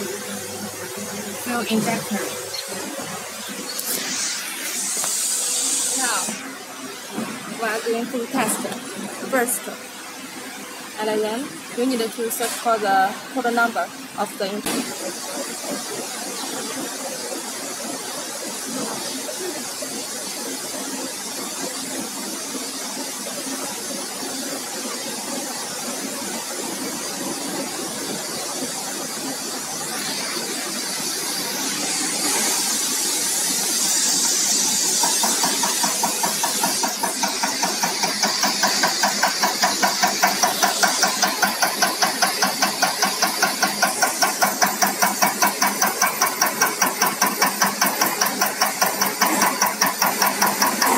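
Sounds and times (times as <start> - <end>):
machine hum and hiss: 0.0 - 50.9
injector clicking pulses: 35.0 - 50.9.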